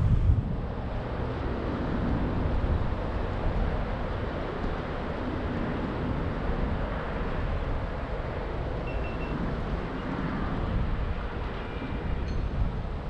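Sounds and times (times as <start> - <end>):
traffic passing: 0.0 - 13.0
wind rumble on microphone: 0.0 - 13.0.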